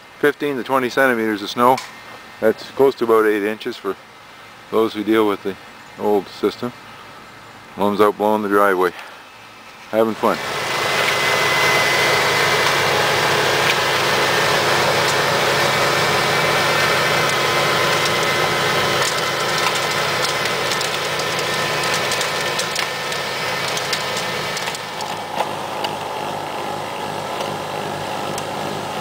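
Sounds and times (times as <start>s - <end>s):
lawn tractor snowblower running: 9.9s - 29.0s.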